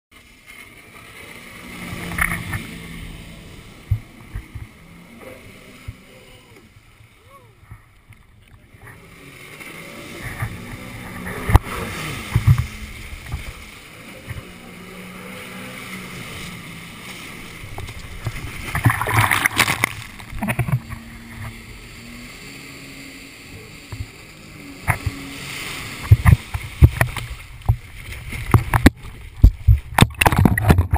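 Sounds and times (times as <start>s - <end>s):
water splashing against hull: 0.1s - 30.9s
jet ski engine revving: 0.2s - 30.9s
rush of spray: 8.6s - 30.9s.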